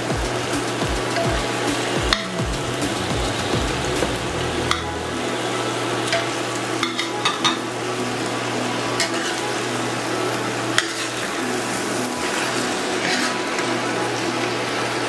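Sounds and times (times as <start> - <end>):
stew sizzling in frying pan: 0.2 - 15.0
metal utensils clicking on pan: 6.1 - 7.6.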